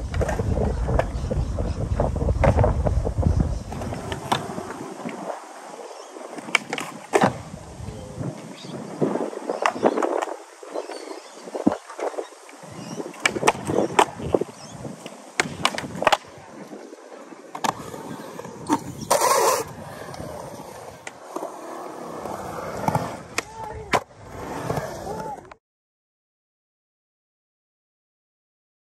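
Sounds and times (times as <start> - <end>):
skateboard wheels rolling on concrete: 0.0 - 25.6
skateboard clacking on ground: 3.7 - 5.5, 6.3 - 7.5, 13.0 - 16.4.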